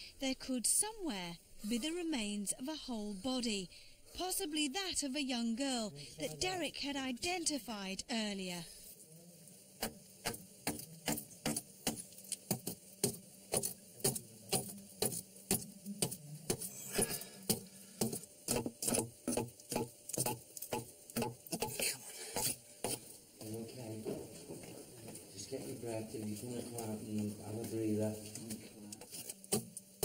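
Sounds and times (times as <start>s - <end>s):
tool chipping at brick wall: 9.8s - 23.1s, 29.0s - 30.0s.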